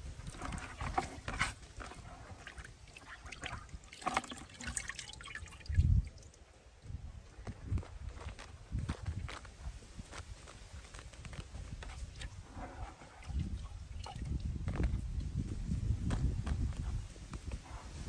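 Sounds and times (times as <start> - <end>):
water dripping and splashing: 0.3 - 6.5, 11.9 - 14.9
small clicks and rustles: 7.3 - 13.6
dull low thump: 14.5 - 17.8.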